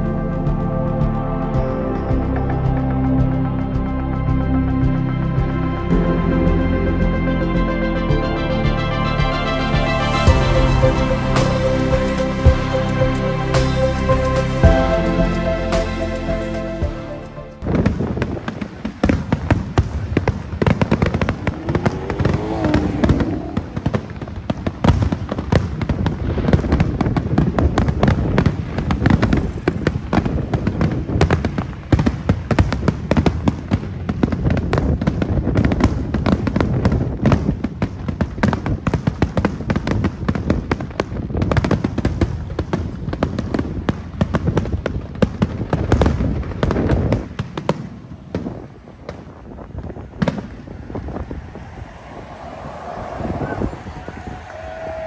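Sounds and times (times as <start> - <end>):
firework whistling glide: 17.6 - 32.1, 47.9 - 55.0
fireworks bangs and crackles: 17.6 - 55.0.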